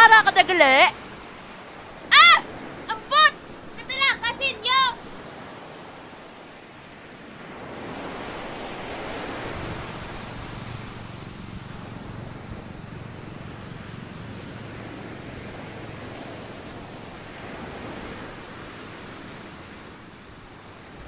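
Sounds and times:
wind and water rushing: 0:00.0 - 0:21.0.

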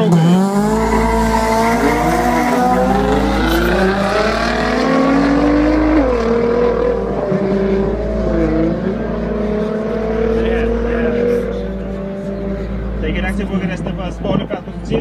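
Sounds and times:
race car engines revving: 0:00.0 - 0:15.0.

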